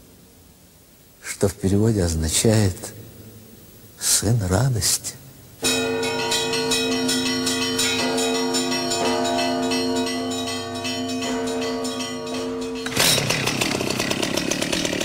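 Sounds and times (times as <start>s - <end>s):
church bells pealing: 5.6s - 14.6s
hum of large bells: 5.6s - 15.0s.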